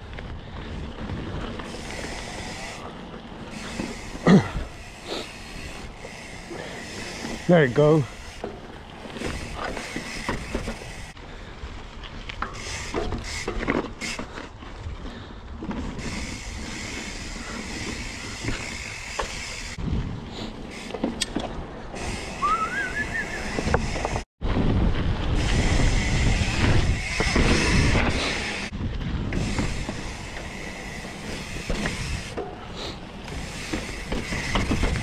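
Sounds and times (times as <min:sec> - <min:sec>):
bike rattling and clicking: 0:00.0 - 0:35.0
bike tyres on dirt trail: 0:00.0 - 0:35.0
wind rushing over microphone: 0:19.6 - 0:20.7, 0:21.6 - 0:32.4
short rising whistle: 0:22.4 - 0:23.6.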